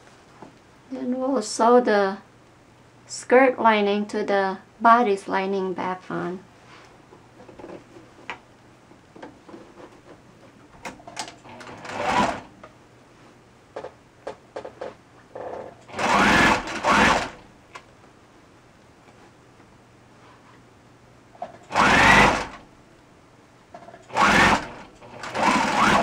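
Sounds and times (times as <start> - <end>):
sewing machine stitching: 11.2 - 12.5, 15.4 - 17.4, 21.4 - 22.6, 23.8 - 26.0.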